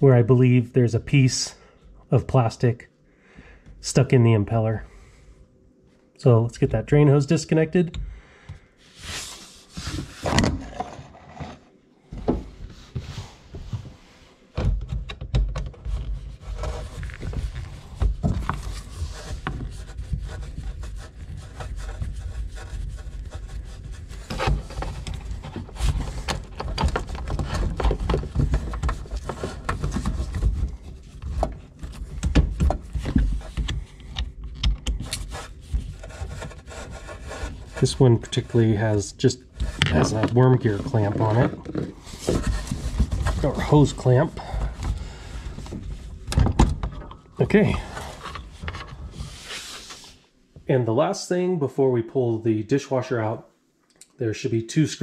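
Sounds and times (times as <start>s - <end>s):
hands rubbing and scraping hose: 15.8s - 46.3s, 47.4s - 50.2s.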